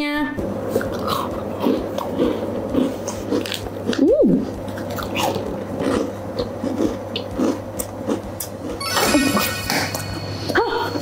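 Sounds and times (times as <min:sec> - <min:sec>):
chewing cookies with soft crunches: 0:04.7 - 0:08.8
rising and falling tone: 0:08.8 - 0:11.0.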